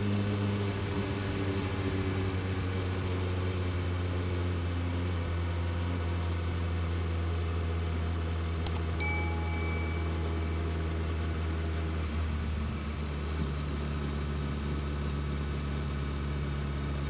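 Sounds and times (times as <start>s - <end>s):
quick clicks: 8.7s - 8.9s
notification bell ding: 8.7s - 10.6s
motorcycle engine running: 8.7s - 14.8s.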